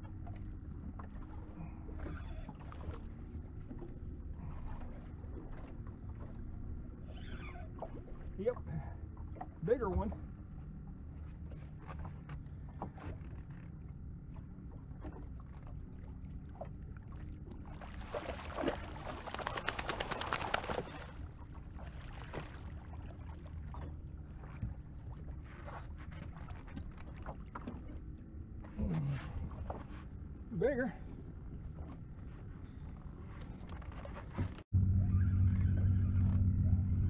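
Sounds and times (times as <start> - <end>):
shark thrashing and splashing: 17.7 - 21.2
steady low rumble: 34.6 - 37.0.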